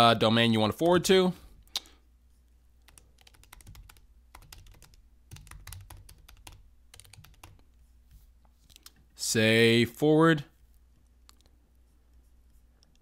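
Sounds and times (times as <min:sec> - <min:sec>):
computer keyboard typing: 0:02.8 - 0:07.6.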